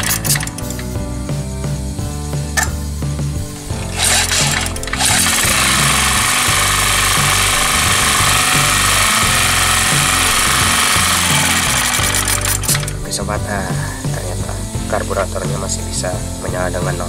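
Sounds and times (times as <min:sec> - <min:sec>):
recoil starter pull: 0:00.0 - 0:01.0, 0:03.8 - 0:13.1
generator engine running: 0:00.0 - 0:01.1, 0:02.6 - 0:15.6.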